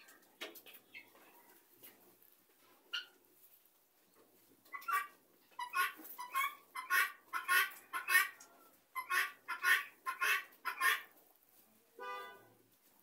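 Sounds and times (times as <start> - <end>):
guineafowl harsh rasping calls: 4.7 - 8.4, 9.0 - 11.1.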